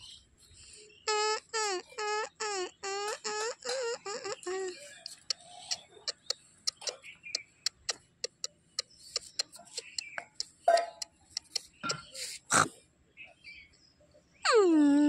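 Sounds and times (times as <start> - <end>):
tongue clicks: 1.1 - 12.7.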